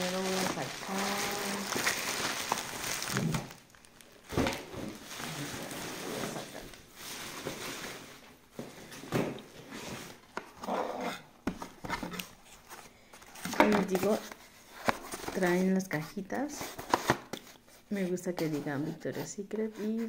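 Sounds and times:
plastic packaging rustling: 0.0 - 10.7, 11.4 - 15.9.

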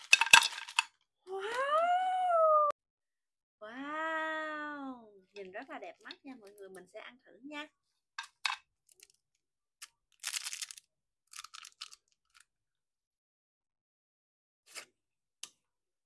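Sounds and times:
candy wrapper crinkling: 0.0 - 0.9, 8.2 - 9.3, 9.9 - 12.5
candy in mouth: 9.8 - 12.5.

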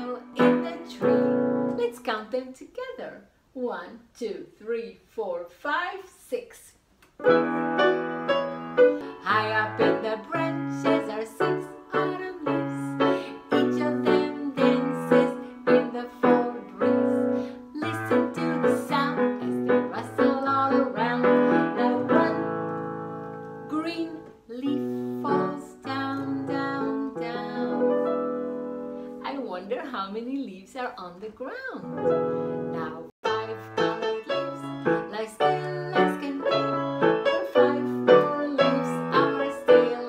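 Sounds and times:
electronic keyboard piano chords: 7.2 - 12.2, 25.3 - 29.1, 31.9 - 39.9.

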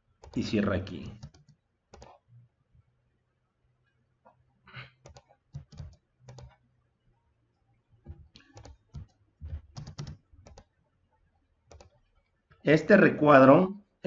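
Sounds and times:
keyboard typing: 0.2 - 2.3, 5.0 - 6.6, 8.1 - 10.8, 11.7 - 12.0
mouse clicks: 5.0 - 6.6.

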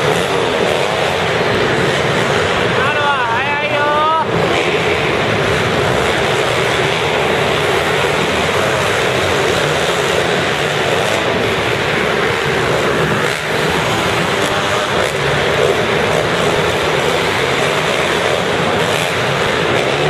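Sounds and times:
motocross bike engines revving: 0.0 - 20.0.

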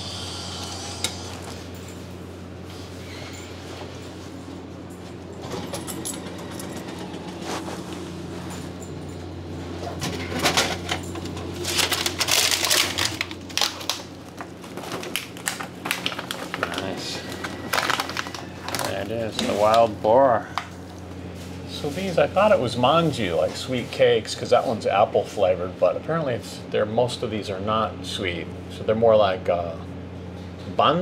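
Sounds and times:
vending machine humming: 0.0 - 31.0
plastic packaging crinkling: 11.6 - 20.7.

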